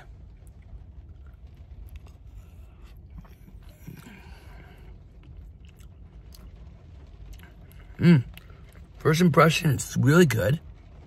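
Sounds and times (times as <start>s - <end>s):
low hum in car cabin: 0.0s - 11.0s
person chewing food: 1.2s - 6.5s.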